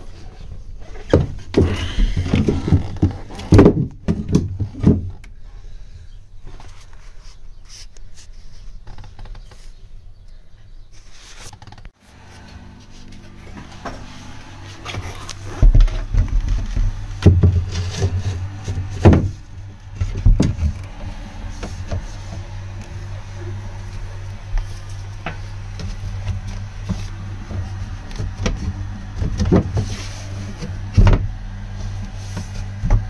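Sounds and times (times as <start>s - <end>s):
steady low hum: 12.0s - 33.0s
knocks and bumps of panel: 15.6s - 22.7s, 25.2s - 30.0s.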